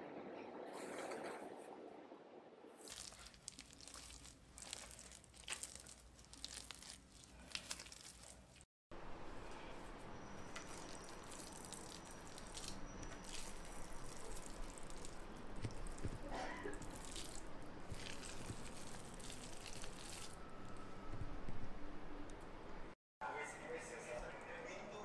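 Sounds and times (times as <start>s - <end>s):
spatula stirring thick paste: 2.8s - 8.6s, 9.8s - 20.4s.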